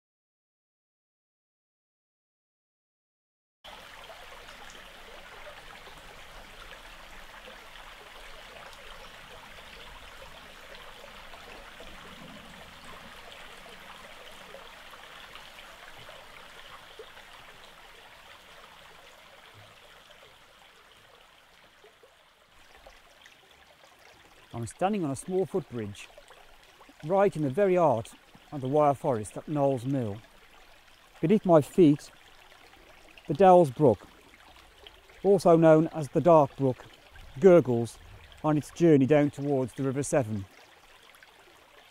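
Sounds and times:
brook gurgling over stones: 3.7s - 41.9s.

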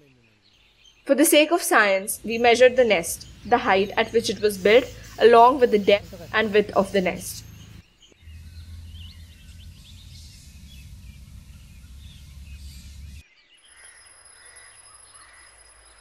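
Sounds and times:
small birds chirping: 0.0s - 16.0s
low rumble: 2.2s - 13.2s.

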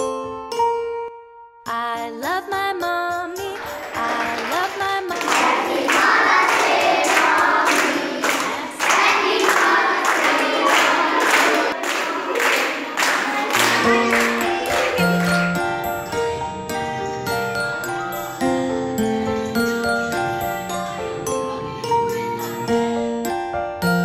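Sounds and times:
rhythmic hand clapping: 3.5s - 16.2s
group singing: 3.6s - 14.4s
tinkling tune: 14.8s - 24.0s.

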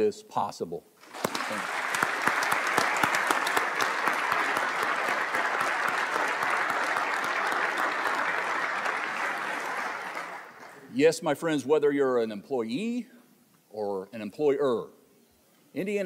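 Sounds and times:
audience applause: 1.0s - 10.9s.

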